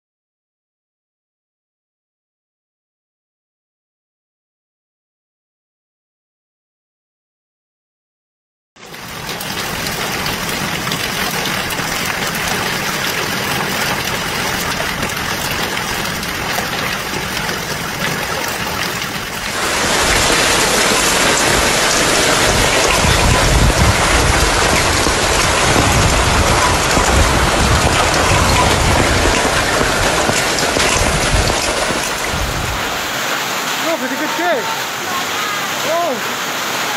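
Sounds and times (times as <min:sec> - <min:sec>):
heavy rain and hail: 0:08.8 - 0:36.9
strong gusts of wind: 0:14.0 - 0:33.5.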